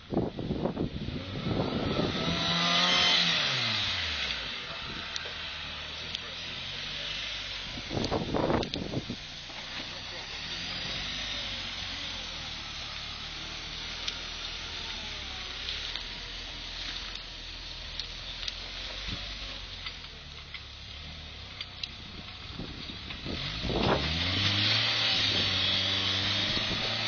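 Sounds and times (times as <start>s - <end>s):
engine running and revving: 0.0s - 27.0s
sharp clicks and crackles: 7.9s - 10.1s, 14.0s - 24.1s.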